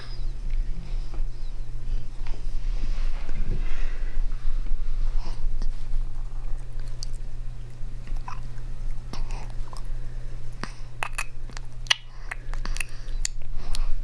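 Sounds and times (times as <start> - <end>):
steady low hum: 0.0 - 14.0
baby lip-smacking and mouth clicks: 10.6 - 13.9.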